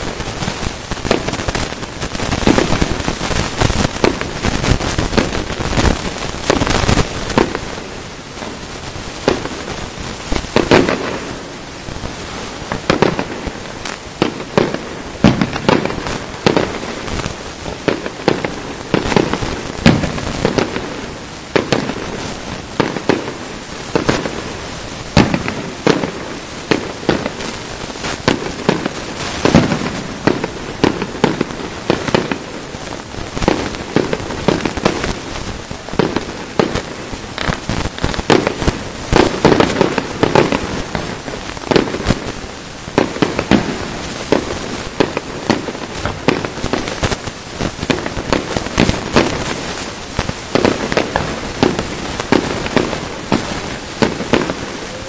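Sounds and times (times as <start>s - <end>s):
constant hiss: 0.0s - 55.0s
firework shells bursting: 12.7s - 22.2s, 28.0s - 42.4s, 43.0s - 55.0s.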